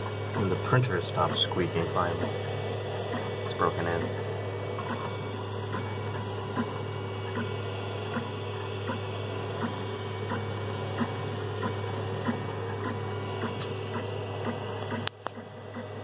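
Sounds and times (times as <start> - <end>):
printer fans and motors hum: 0.0 - 16.0.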